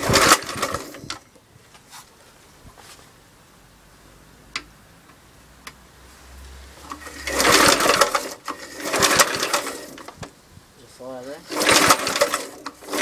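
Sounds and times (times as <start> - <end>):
engine cranking on recoil starter: 0.0 - 1.3, 6.8 - 10.3, 11.0 - 13.0.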